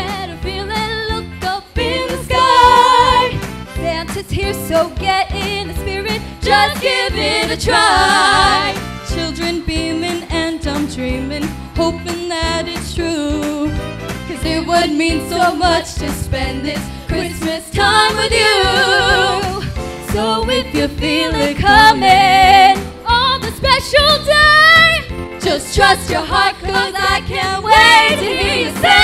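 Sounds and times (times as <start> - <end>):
women singing: 0.0 - 13.7, 14.3 - 29.0
backing track with beat: 15.3 - 23.7.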